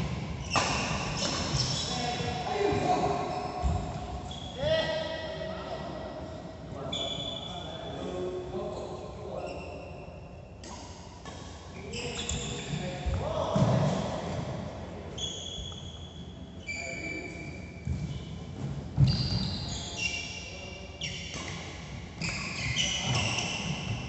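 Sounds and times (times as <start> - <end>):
shoes squeaking on court: 0.1 - 4.7, 11.8 - 13.0, 15.1 - 24.0
racket hitting shuttlecock: 0.4 - 1.6.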